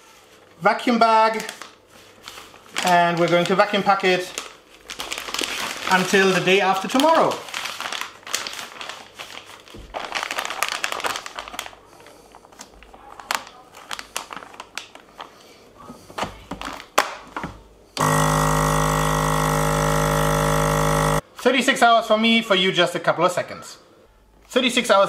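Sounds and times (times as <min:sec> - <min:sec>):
plastic bag rustling: 0:00.0 - 0:17.4
vacuum pump humming: 0:18.0 - 0:21.2.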